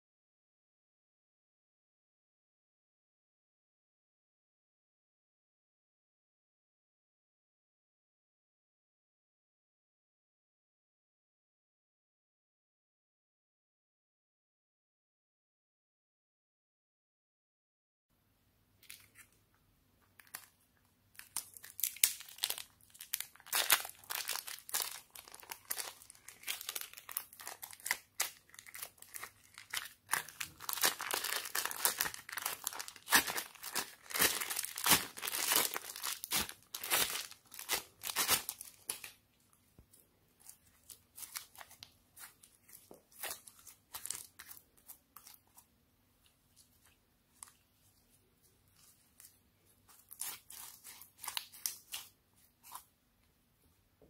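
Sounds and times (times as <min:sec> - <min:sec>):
plastic bag crinkling: 0:21.2 - 0:39.2, 0:40.4 - 0:45.6, 0:48.8 - 0:52.8
sticky slime crackles: 0:21.2 - 0:39.2, 0:40.4 - 0:45.6, 0:48.7 - 0:52.9.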